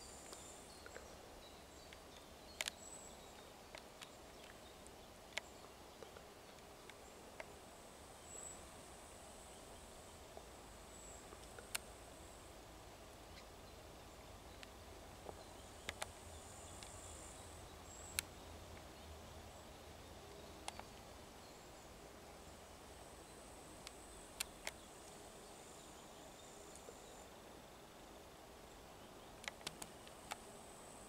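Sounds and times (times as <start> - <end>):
steady low hiss: 0.0 - 31.0
sharp clicks: 15.8 - 16.1, 29.4 - 30.4.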